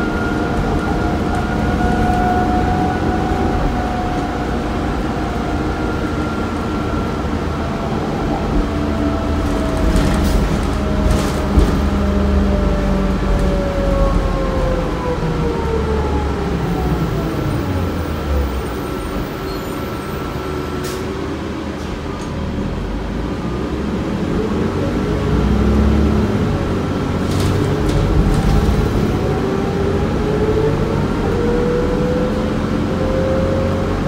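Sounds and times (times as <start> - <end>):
bus engine and transmission whine: 0.0 - 34.0.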